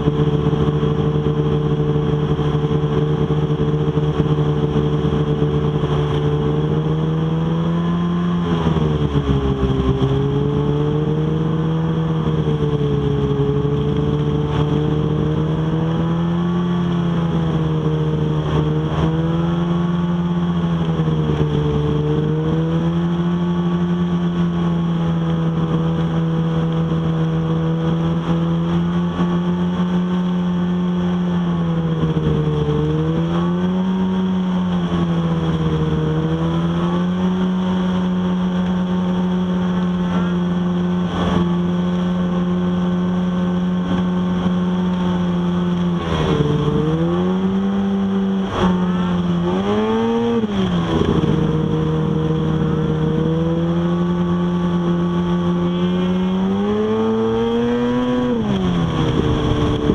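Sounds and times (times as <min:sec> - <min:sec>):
snowmobile engine running: 0:00.0 - 0:59.9.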